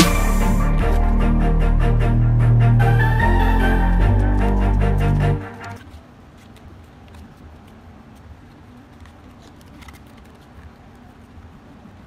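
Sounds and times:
low room rumble: 0.0s - 6.0s.

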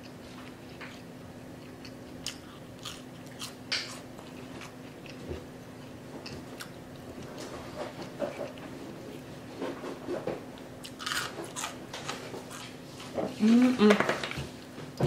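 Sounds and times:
person chewing crispy food: 0.0s - 9.5s, 10.6s - 12.8s.

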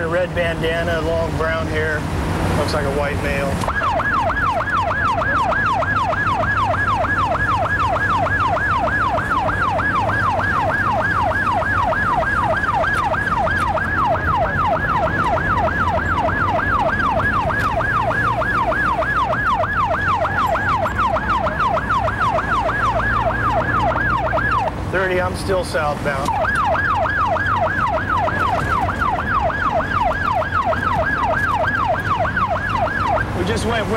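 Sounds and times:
car engine and road noise: 0.0s - 33.9s
police siren yelping: 0.0s - 33.9s.

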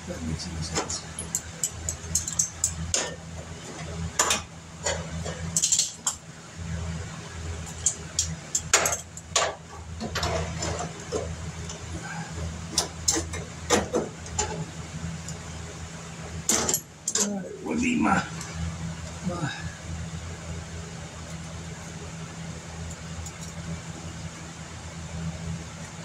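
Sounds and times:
steady low hum: 0.0s - 26.0s
sheet metal being handled: 8.5s - 11.9s.

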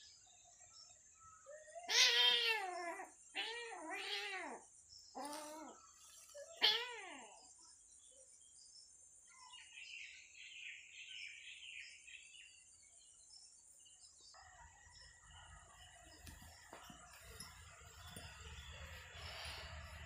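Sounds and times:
distant bird calls: 14.4s - 20.0s.

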